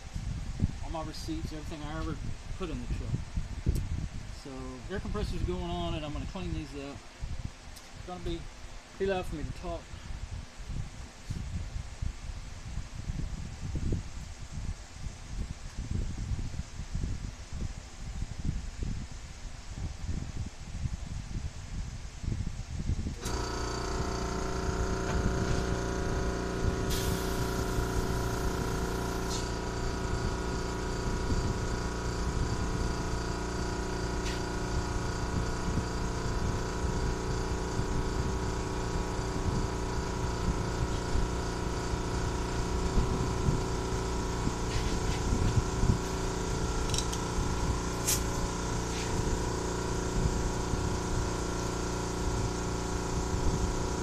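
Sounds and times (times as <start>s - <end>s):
air compressor running: 0.0s - 7.0s, 23.0s - 54.0s
compressed air hiss: 23.2s - 54.0s.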